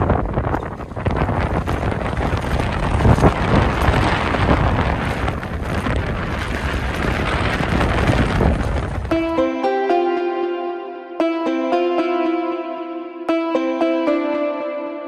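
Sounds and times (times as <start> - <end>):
wind buffeting microphone: 0.0 - 9.7
music with sustained notes: 8.2 - 15.0.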